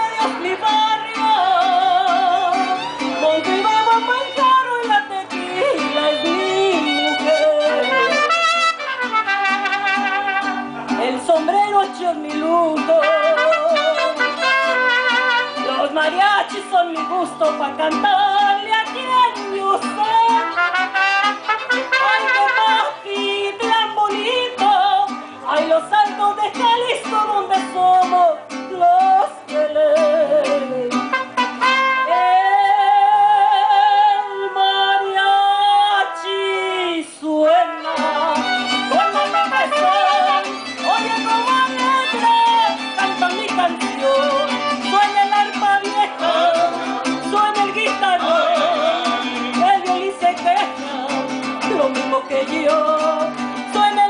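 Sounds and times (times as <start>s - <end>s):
mariachi band playing: 0.0s - 54.0s
woman singing with vibrato: 0.0s - 54.0s.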